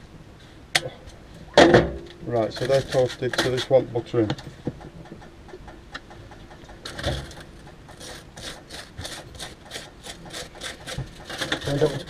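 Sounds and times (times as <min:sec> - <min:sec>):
knife scraping butter on toast: 0:02.6 - 0:03.7, 0:07.9 - 0:12.0.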